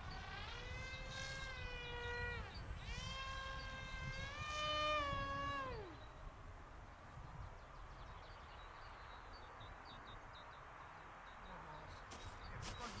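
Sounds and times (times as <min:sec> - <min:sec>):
distant electric motor whine: 0:00.0 - 0:06.2.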